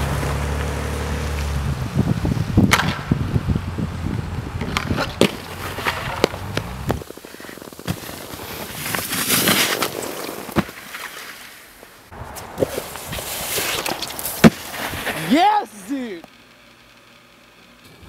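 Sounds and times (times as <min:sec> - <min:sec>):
board sliding with hiss: 0:12.6 - 0:15.3.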